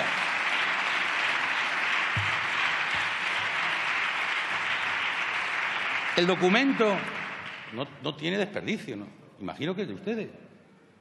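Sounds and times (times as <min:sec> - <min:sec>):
dense steady clapping: 0:00.0 - 0:07.8.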